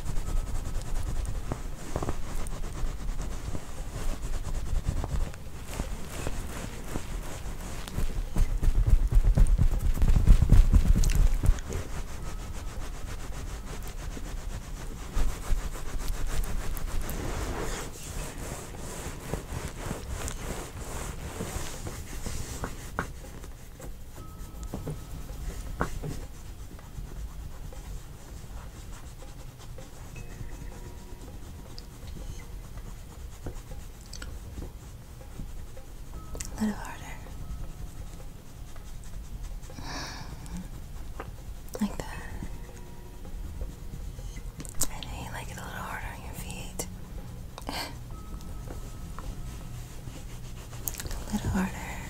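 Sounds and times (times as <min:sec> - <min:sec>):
hands rubbing skin and fabric: 0:00.0 - 0:52.0
low thumps and rumble: 0:07.2 - 0:12.1.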